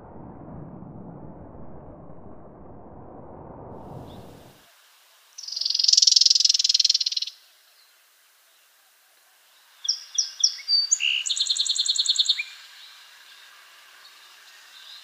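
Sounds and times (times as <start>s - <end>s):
bird buzzy rattle call: 5.4s - 7.4s.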